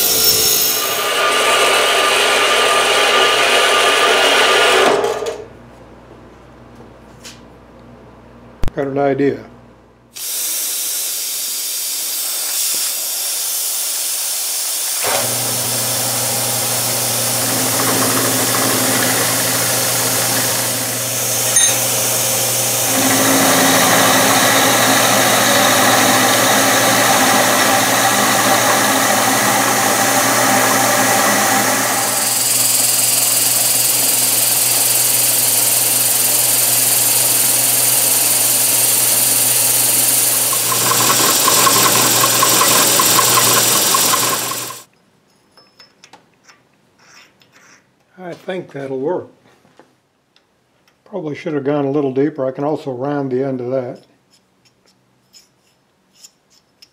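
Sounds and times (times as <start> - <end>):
end mill grinding metal: 0.0 - 5.4, 15.0 - 44.9
milling machine motor hum: 15.0 - 44.9.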